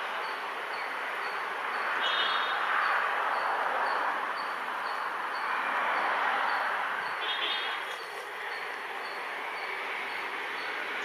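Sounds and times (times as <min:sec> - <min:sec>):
bird chirping: 0:00.2 - 0:05.5, 0:06.5 - 0:11.0
distant train approaching: 0:03.2 - 0:11.0.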